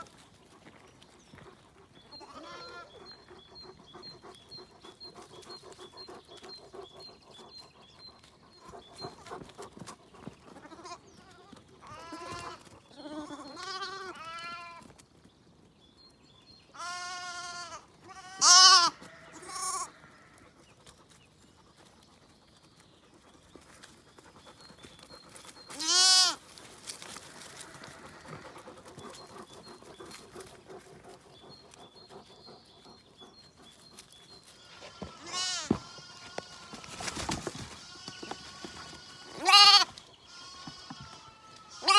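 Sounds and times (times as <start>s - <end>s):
lambs bleating: 2.2s - 2.9s, 10.6s - 14.8s, 16.8s - 20.4s, 25.7s - 26.4s, 34.6s - 41.9s.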